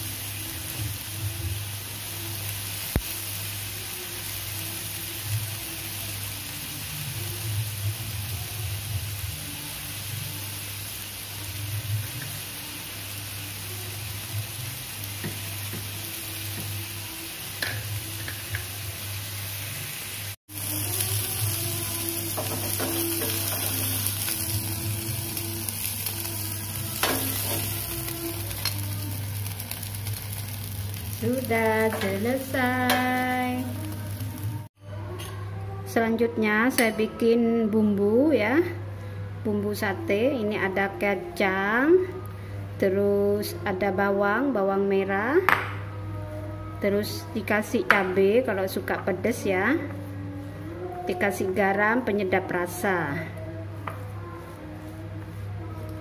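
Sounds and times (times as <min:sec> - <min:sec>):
meat sizzling on a grill pan: 0:00.0 - 0:34.6.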